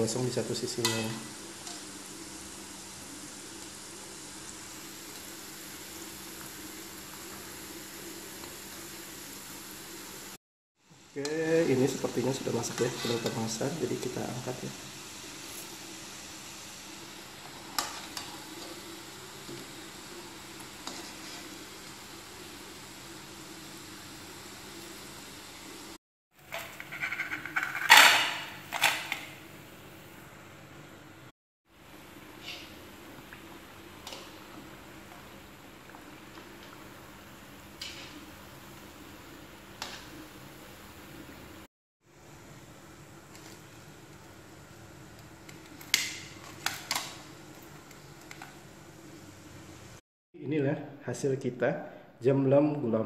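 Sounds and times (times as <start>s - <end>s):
oil sizzling and bubbling: 0.0s - 50.0s
fried food clattering onto plate: 26.5s - 29.3s.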